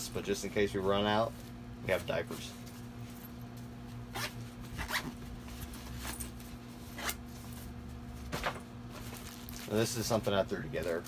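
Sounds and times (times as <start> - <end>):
zipper pulls: 4.1 - 5.2, 6.9 - 7.2.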